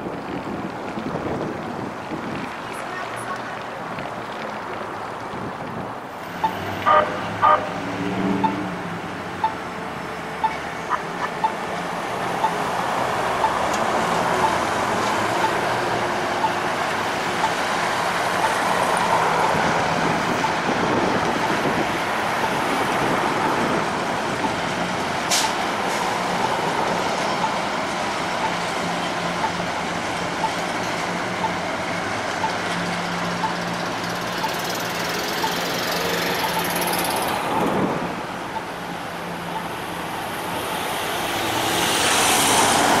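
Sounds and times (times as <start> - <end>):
road traffic noise: 0.0 - 43.0
car passing close: 6.2 - 9.4, 39.5 - 43.0
light-rail train hum: 8.8 - 43.0.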